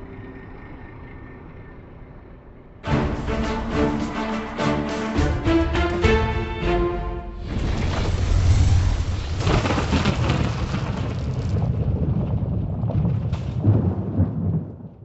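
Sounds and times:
deep noisy rumble: 0:00.0 - 0:14.5
whooshes: 0:06.6 - 0:10.5.

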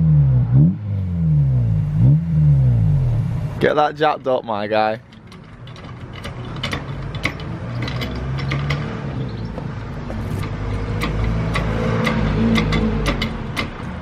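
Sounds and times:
trolley jack clicking: 0:04.0 - 0:14.0.

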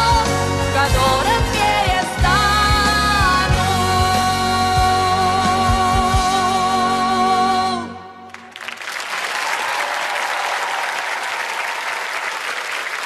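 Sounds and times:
woman singing with vibrato: 0:00.0 - 0:08.2
backing music: 0:00.0 - 0:08.3
audience applause: 0:08.3 - 0:13.0.

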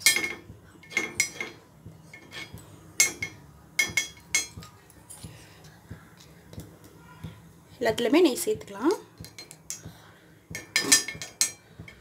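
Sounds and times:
metal spoon clinking on pan: 0:00.0 - 0:04.8, 0:09.2 - 0:09.9, 0:10.5 - 0:12.0.

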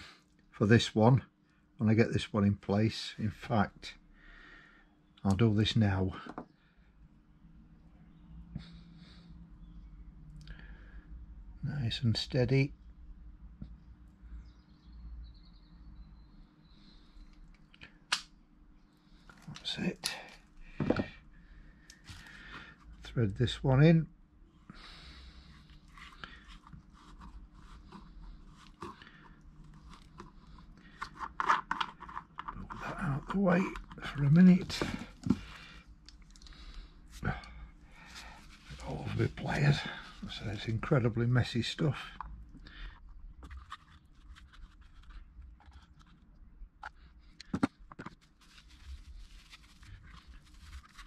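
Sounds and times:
plastic fitting clicking and scraping: 0:29.8 - 0:36.5, 0:42.2 - 0:48.3
pliers scraping and clicking on plastic: 0:31.0 - 0:34.0.

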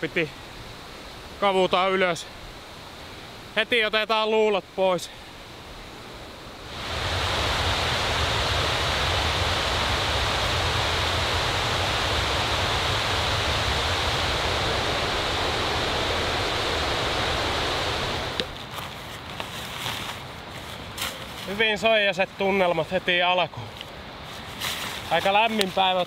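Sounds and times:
water rushing: 0:04.6 - 0:18.6.

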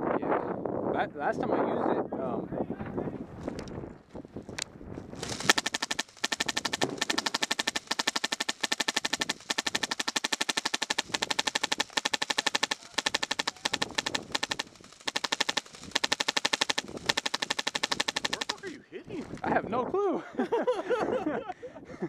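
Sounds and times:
airsoft machine gun firing: 0:05.2 - 0:18.8.

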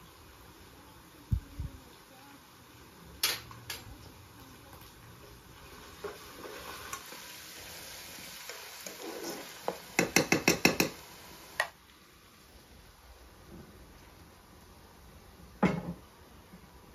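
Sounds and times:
pan sizzling: 0:01.8 - 0:16.9
ladle stirring stew in pan: 0:04.8 - 0:11.7
ladle knocking against pan: 0:10.0 - 0:11.0.

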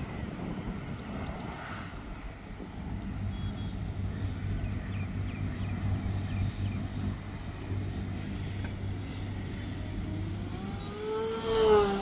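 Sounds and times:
wind: 0:00.0 - 0:12.0
low motor hum: 0:02.1 - 0:12.0.

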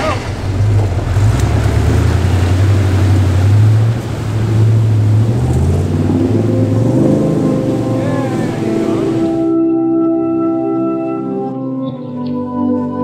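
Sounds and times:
car engine revving: 0:00.0 - 0:09.7
music: 0:06.6 - 0:13.0.

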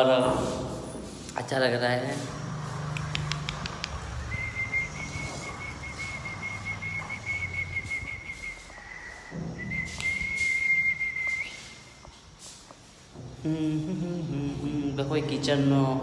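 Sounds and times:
man whistling high note: 0:04.2 - 0:12.0.

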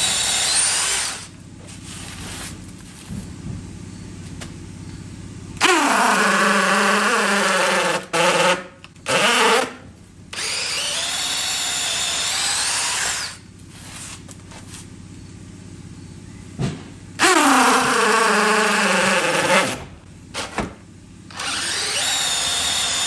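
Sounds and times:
cordless drill boring into wood: 0:00.0 - 0:01.3, 0:05.6 - 0:13.4, 0:17.2 - 0:19.8, 0:21.3 - 0:23.0.

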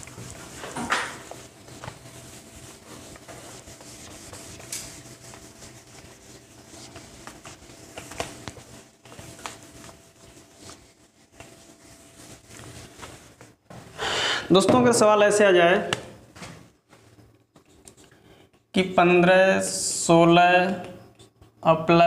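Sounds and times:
duster scrubbing whiteboard: 0:00.0 - 0:13.9.

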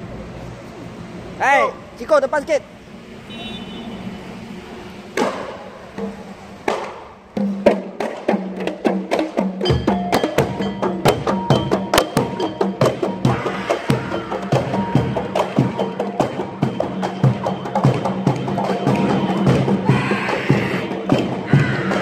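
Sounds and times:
hand frame drums: 0:05.2 - 0:22.0.

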